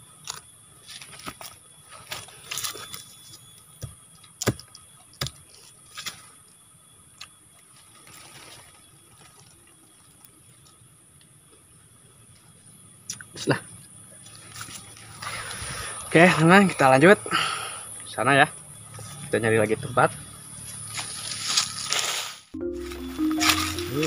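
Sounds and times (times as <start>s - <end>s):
steady high hiss: 22.4s - 24.0s.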